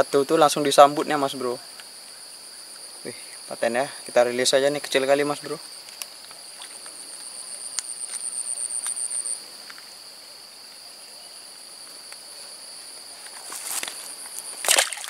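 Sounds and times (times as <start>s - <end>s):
insects trilling chorus: 0.0s - 15.0s
rapidly pulsing insect trill: 0.0s - 15.0s
brief rustle: 13.2s - 14.9s.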